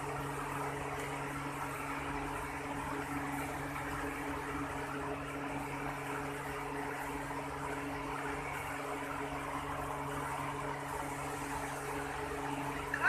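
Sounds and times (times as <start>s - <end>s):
machine hum: 0.0s - 13.0s.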